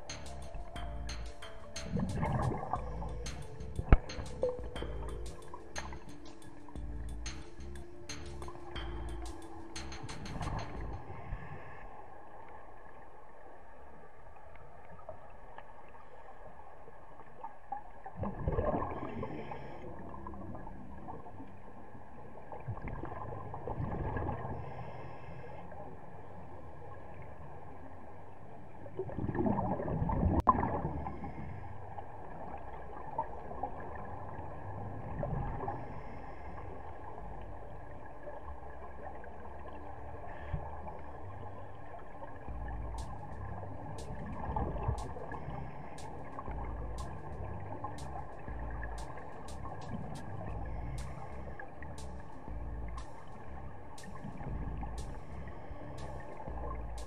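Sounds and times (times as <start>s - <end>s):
steady low hum: 0.0s - 11.9s, 35.6s - 57.0s.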